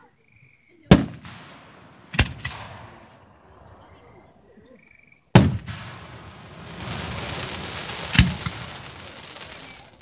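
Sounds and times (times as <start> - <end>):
firework shells bursting: 0.9 - 4.4, 5.3 - 10.0
firework sizzling hiss: 5.6 - 10.0.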